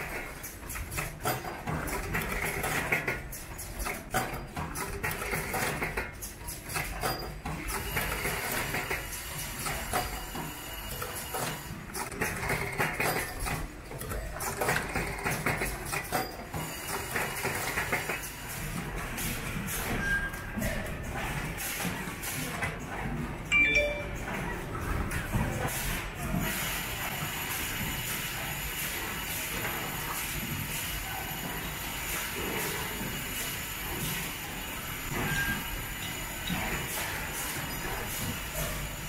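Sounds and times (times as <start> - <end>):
machine clamps clicking and clacking: 0.0 - 23.2.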